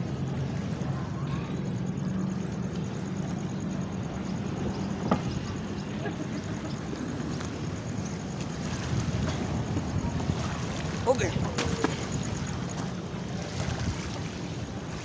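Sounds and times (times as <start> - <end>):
boat engine humming: 0.0 - 15.0
wind noise: 6.9 - 15.0.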